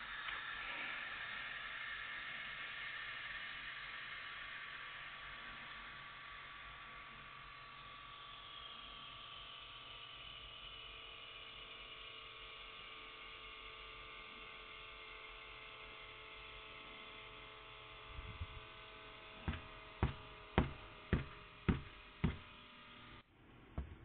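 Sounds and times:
air pump motor whine: 0:00.0 - 0:24.0
hand patting a pillow: 0:19.5 - 0:22.5, 0:23.8 - 0:24.0.

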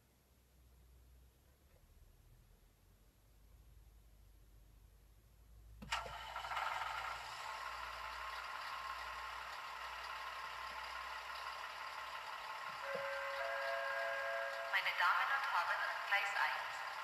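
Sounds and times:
model diesel engine idling sound: 0:05.8 - 0:17.0.

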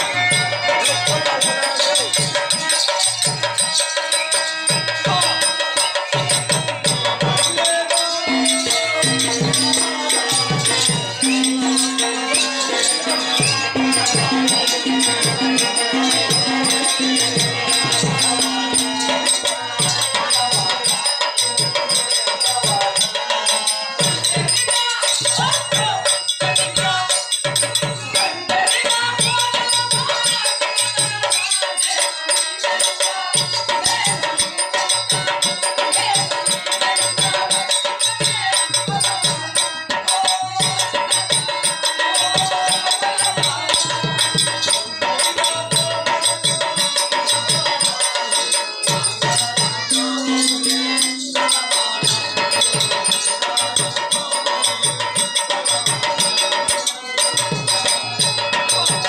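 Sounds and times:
continuous jingling: 0:00.0 - 0:59.0
hand drums beating rhythm: 0:00.0 - 0:59.0
held drone notes: 0:49.9 - 0:52.2.

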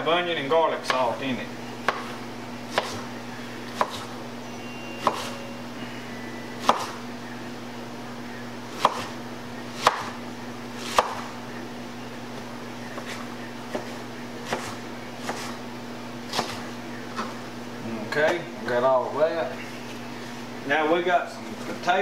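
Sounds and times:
knife chopping on wooden board: 0:01.8 - 0:04.2, 0:05.0 - 0:05.4, 0:06.6 - 0:07.0, 0:08.7 - 0:10.2, 0:10.8 - 0:11.4, 0:12.9 - 0:15.6, 0:16.3 - 0:17.4.

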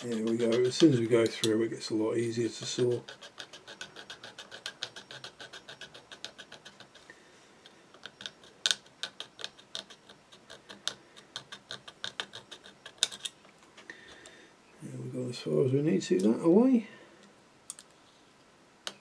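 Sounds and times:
razor saw cutting plastic: 0:00.0 - 0:01.0.

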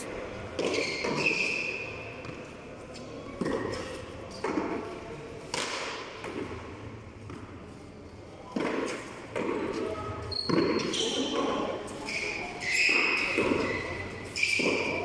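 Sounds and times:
short high squeak: 0:12.0 - 0:15.0.

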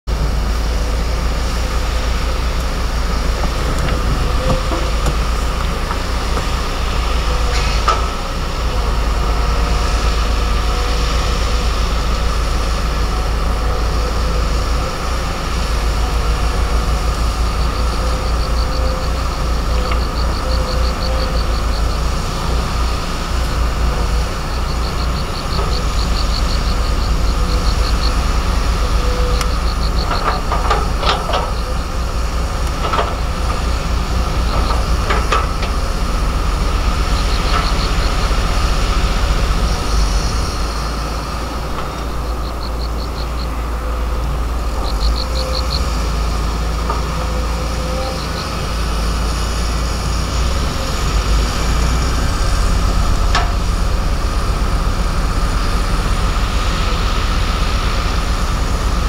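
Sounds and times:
excavator diesel engine rumbling: 0:00.0 - 0:59.0.

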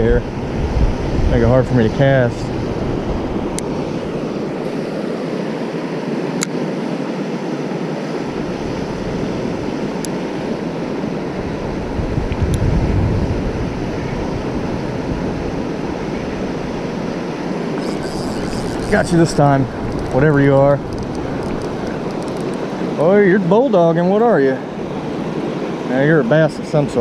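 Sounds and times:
wind on microphone: 0:00.0 - 0:04.8, 0:11.2 - 0:16.8, 0:17.8 - 0:22.9.

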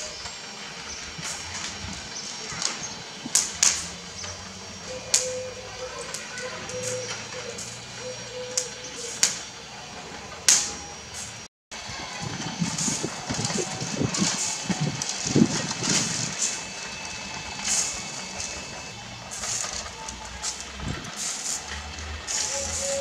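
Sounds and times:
charcoal fire crackling and popping: 0:00.0 - 0:23.0.

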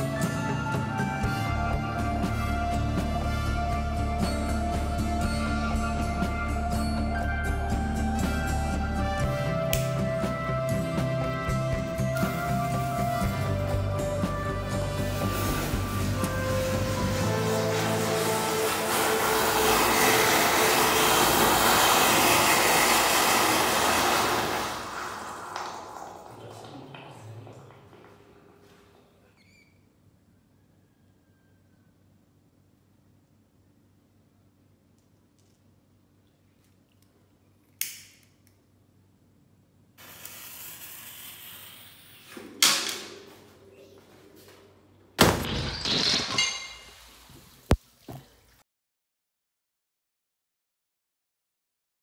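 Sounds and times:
firework fountain hissing: 0:15.0 - 0:27.0, 0:40.0 - 0:42.2
lighter click: 0:37.8 - 0:38.6.

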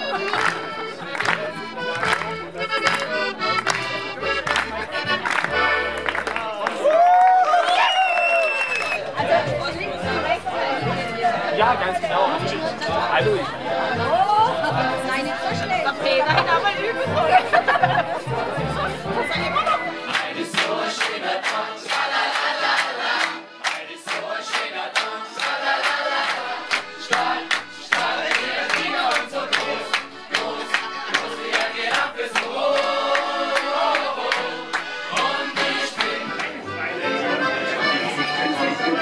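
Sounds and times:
people singing together: 0:00.0 - 0:02.2, 0:09.1 - 0:39.0
lively folk music: 0:00.0 - 0:07.1, 0:08.6 - 0:39.0
people clapping in time: 0:00.0 - 0:09.7, 0:19.6 - 0:36.8.

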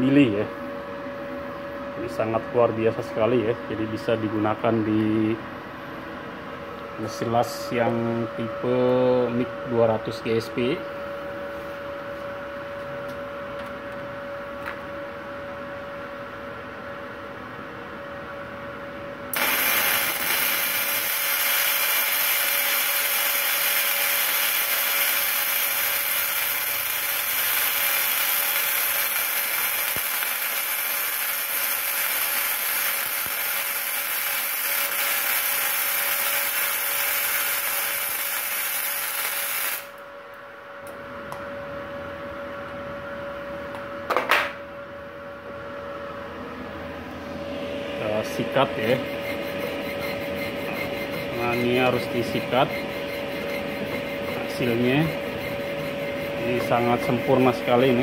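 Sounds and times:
faint steady whine: 0:00.0 - 0:58.0
welding arc burning: 0:19.3 - 0:40.0.

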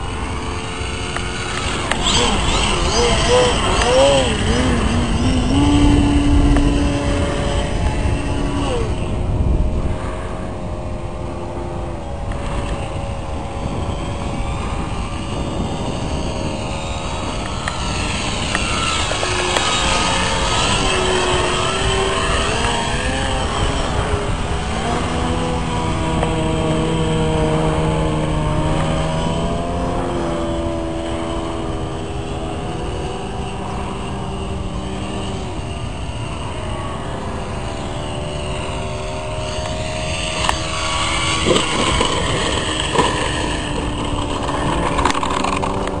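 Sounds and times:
model plane motor droning: 0:00.0 - 0:46.0.

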